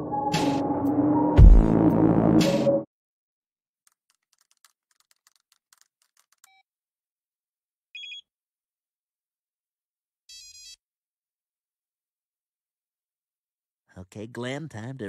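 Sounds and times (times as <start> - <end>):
music with a beat: 1.4 - 1.8.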